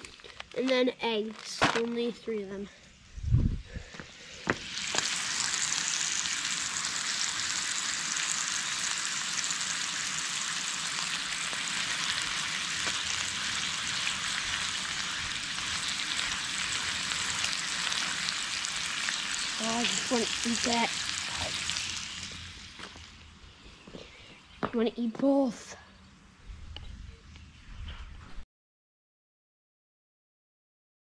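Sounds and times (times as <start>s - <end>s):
food sizzling in a pan: 4.5s - 23.2s.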